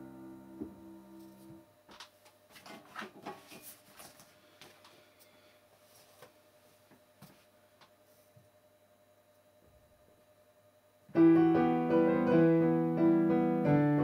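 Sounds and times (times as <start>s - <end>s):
soft handling rustles and clicks: 1.2s - 8.4s.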